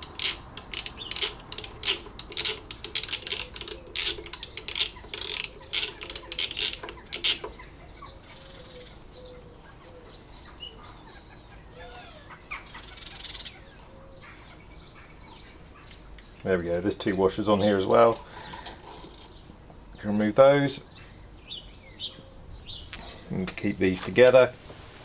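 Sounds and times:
socket ratchet clicking: 0:00.0 - 0:07.6.

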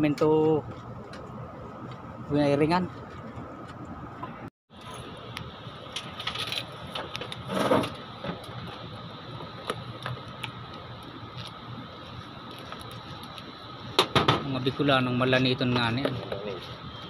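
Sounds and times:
mechanical hum with high tone: 0:00.0 - 0:17.0.

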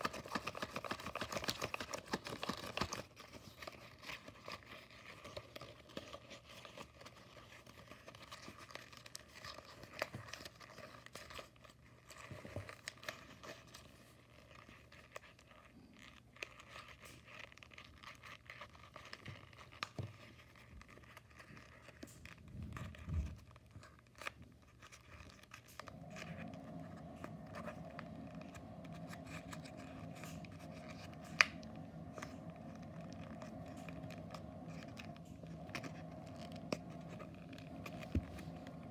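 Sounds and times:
paper crinkling and rustling: 0:00.0 - 0:38.9
steady hum: 0:25.6 - 0:38.9.

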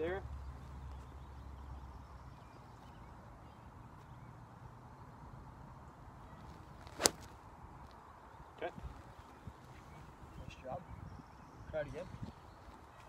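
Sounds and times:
golf club striking ball: 0:06.9 - 0:07.3.

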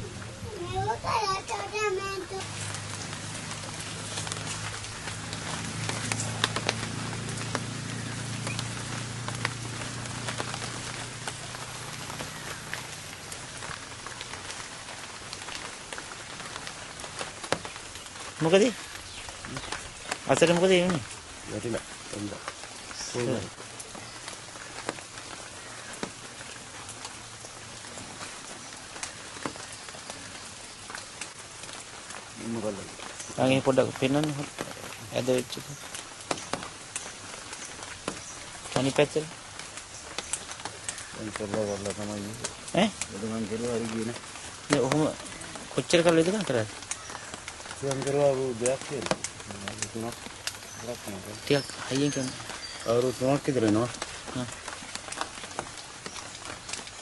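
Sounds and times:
light rain pattering: 0:00.0 - 0:57.0
sharp drip ticks: 0:02.4 - 0:57.0.

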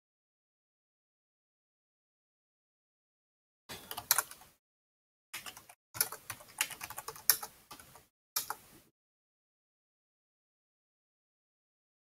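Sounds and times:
typing on keyboard: 0:03.8 - 0:04.5, 0:05.4 - 0:08.6.

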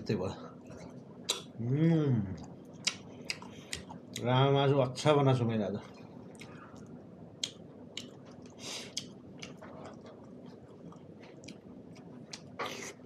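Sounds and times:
wet mouth clicks and smacks: 0:02.8 - 0:03.9, 0:06.3 - 0:09.6
close chewing: 0:07.4 - 0:13.0.

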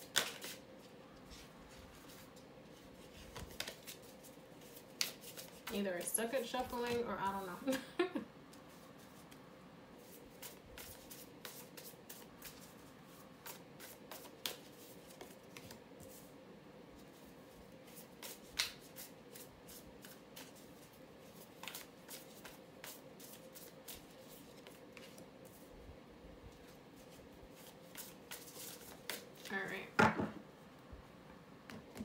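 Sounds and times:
cards shuffled and laid on table: 0:00.0 - 0:00.6, 0:03.0 - 0:05.8, 0:13.4 - 0:15.8, 0:21.6 - 0:25.2.

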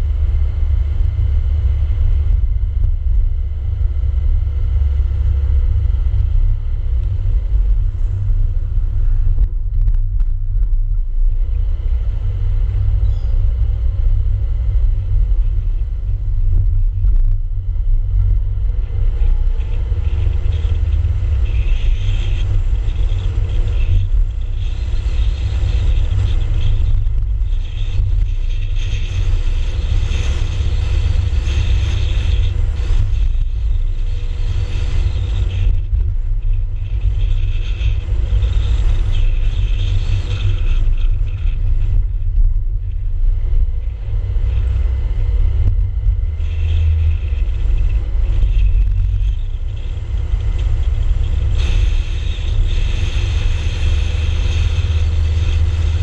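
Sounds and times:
road noise: 0:00.0 - 0:56.0
hiss: 0:50.7 - 0:56.0.

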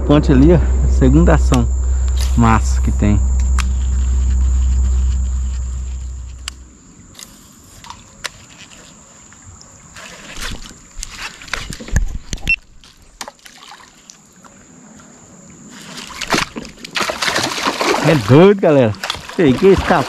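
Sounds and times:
high-pitched whine: 0:00.0 - 0:07.2
fish splashing at surface: 0:15.8 - 0:18.3.

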